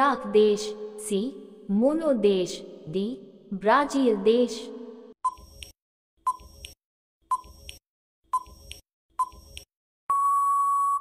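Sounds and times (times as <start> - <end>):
long steady beep: 10.1 - 11.0.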